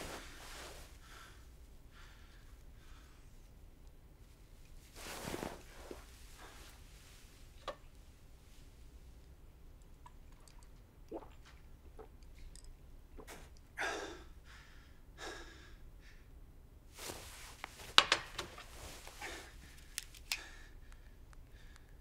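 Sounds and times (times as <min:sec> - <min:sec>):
rustling: 0:00.0 - 0:01.3, 0:04.2 - 0:07.7, 0:16.9 - 0:20.4.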